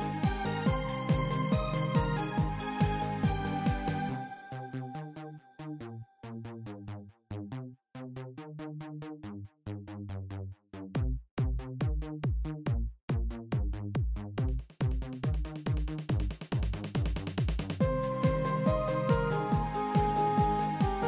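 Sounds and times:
deep heavy kick drum: 0.0s - 4.0s, 11.0s - 21.0s
electronic music with drum-machine beat: 0.0s - 5.0s, 11.0s - 21.0s.

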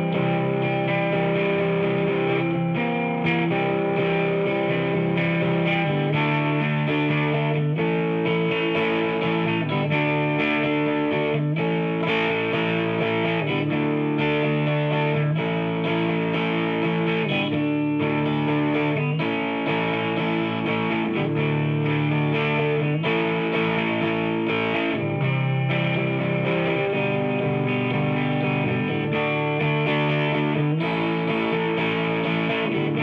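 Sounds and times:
distorted electric guitar chords: 0.0s - 33.0s.

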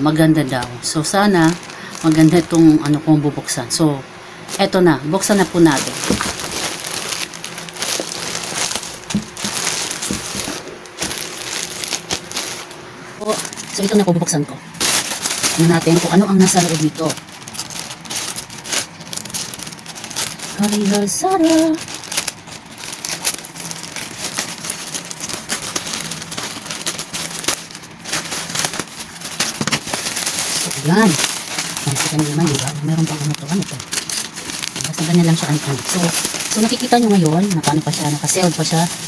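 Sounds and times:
plastic pouch crinkling: 0.0s - 3.6s, 4.5s - 39.0s
scissors cutting plastic: 14.8s - 39.0s.

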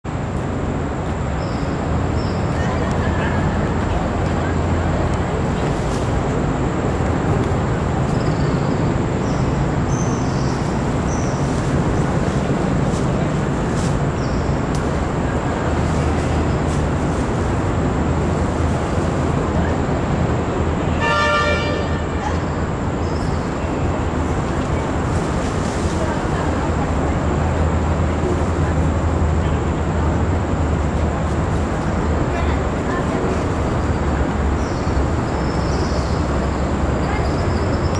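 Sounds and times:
distant road traffic rumble: 0.0s - 37.9s
car horn toot: 21.0s - 22.1s.

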